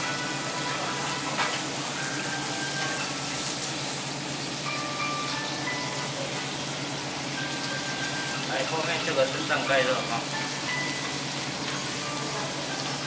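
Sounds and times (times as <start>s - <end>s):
food sizzling on griddle: 0.0s - 13.0s
chime-like background music: 4.6s - 6.6s, 7.4s - 9.2s, 10.1s - 13.0s.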